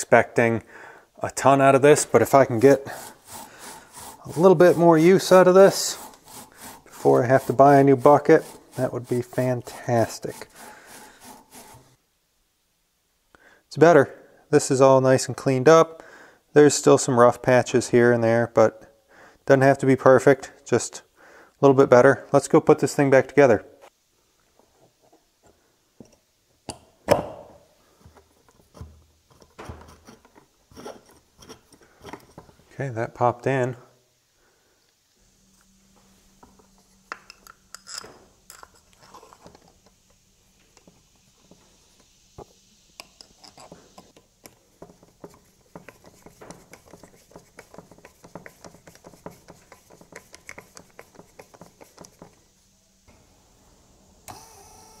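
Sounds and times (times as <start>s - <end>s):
handling scraping and rustling: 1.3s - 12.0s, 27.5s - 33.3s, 35.4s - 52.6s
hands clicking and tapping parts: 28.0s - 32.6s, 43.0s - 52.4s
electric motor hum: 53.1s - 55.0s.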